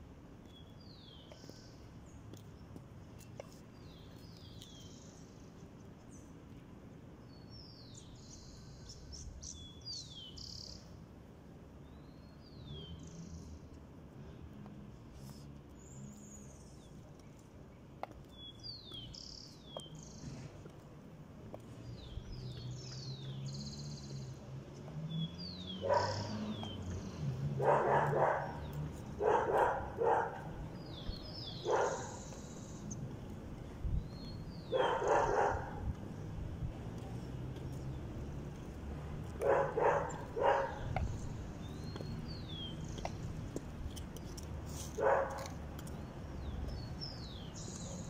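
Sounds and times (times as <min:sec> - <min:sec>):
birds chirping: 0:00.4 - 0:06.4, 0:14.6 - 0:20.9, 0:21.5 - 0:48.0
dog barking: 0:25.8 - 0:26.5, 0:27.6 - 0:30.6, 0:31.6 - 0:32.3, 0:34.7 - 0:35.8, 0:39.4 - 0:40.9, 0:45.0 - 0:45.4.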